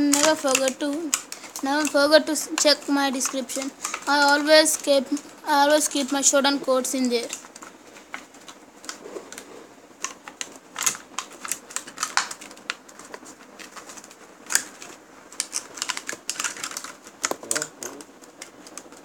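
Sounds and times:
sharp clicks and snaps: 0.0s - 5.3s, 10.0s - 19.0s
plastic packaging tearing: 0.0s - 6.2s, 7.2s - 18.9s.

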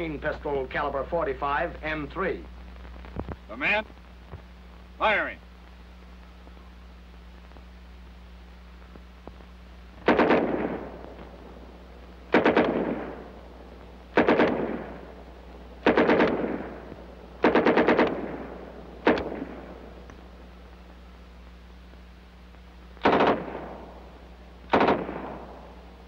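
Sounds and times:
low hum: 0.0s - 26.0s
submachine gun bursts: 10.0s - 10.8s, 12.3s - 13.1s, 14.2s - 14.9s, 15.8s - 16.6s, 17.4s - 18.4s, 23.0s - 23.6s, 24.7s - 25.5s.

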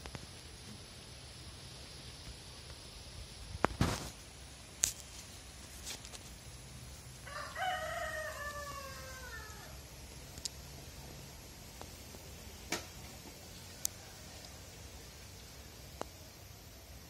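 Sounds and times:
rooster crowing: 7.2s - 9.8s.

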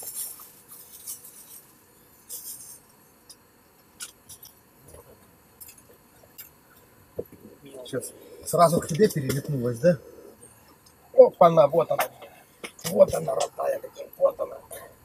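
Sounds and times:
small clicks and scrapes: 0.0s - 6.9s.

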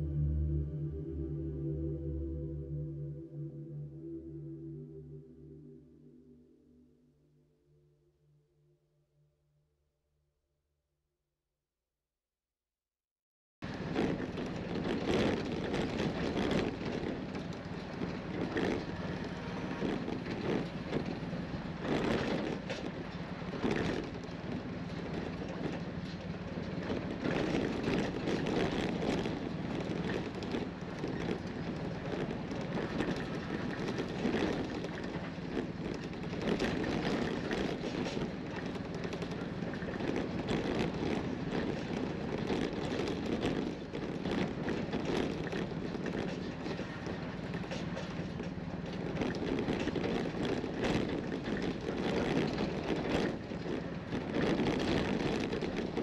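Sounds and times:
vehicle engine drone: 0.0s - 9.2s, 13.6s - 56.0s
knocks and rattles over bumps: 13.6s - 56.0s
tyre and road rumble: 13.6s - 56.0s.

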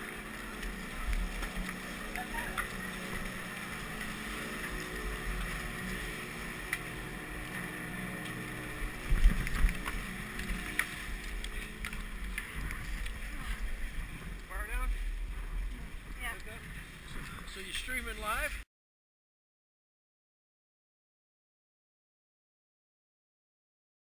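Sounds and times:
machinery hum and rumble: 0.0s - 17.6s
low knocks and thumps: 0.6s - 17.8s.

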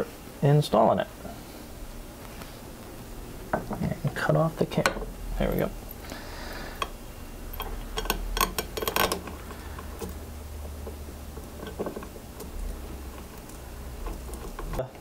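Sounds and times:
low steady hum: 0.0s - 15.0s
small clicks of metal parts: 6.8s - 14.9s.

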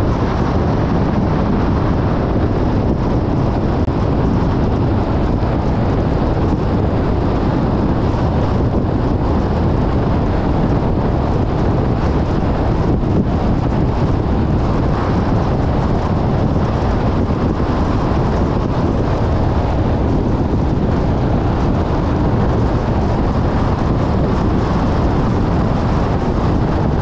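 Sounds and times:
rushing wind: 0.0s - 27.0s
tyres rumbling on road: 0.0s - 27.0s.

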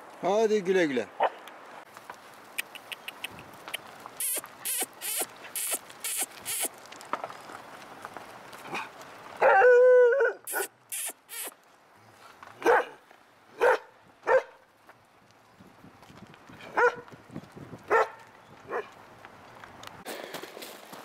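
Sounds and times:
dog barking: 1.2s - 1.4s, 9.4s - 10.7s, 12.6s - 13.0s, 13.6s - 14.6s, 16.7s - 17.0s, 17.9s - 18.9s
short hissing sounds: 4.2s - 6.8s, 10.5s - 11.6s.

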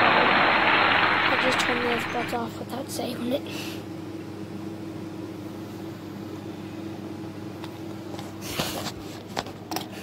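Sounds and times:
ceiling fan motor hum: 0.0s - 10.0s.

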